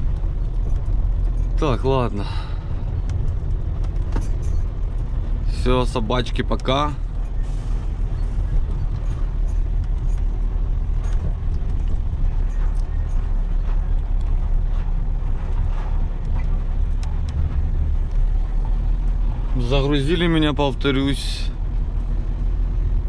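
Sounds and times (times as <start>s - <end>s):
truck diesel engine droning: 0.0s - 23.0s
faint ticks and rattles: 8.5s - 19.8s.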